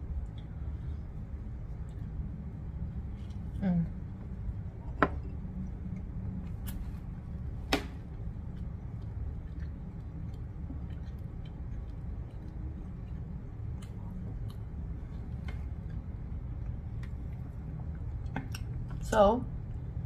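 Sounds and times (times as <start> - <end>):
low room hum: 0.0 - 20.0
person chewing food: 4.6 - 19.0.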